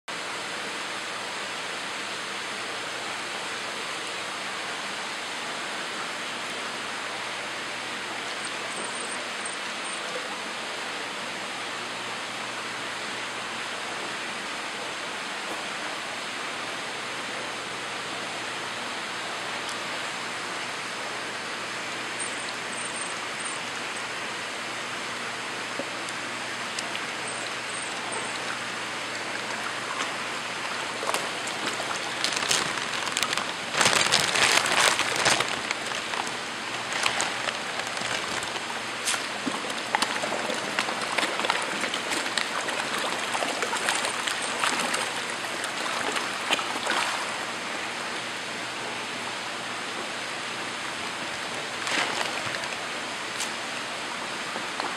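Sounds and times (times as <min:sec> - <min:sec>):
rushing water: 0:26.6 - 0:48.0
fish splashing at the surface: 0:29.6 - 0:47.4, 0:51.7 - 0:52.9.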